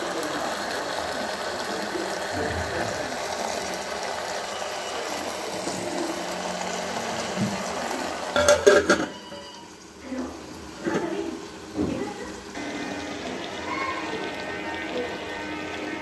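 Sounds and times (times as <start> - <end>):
metal plate clanking on pot: 8.3 - 9.6.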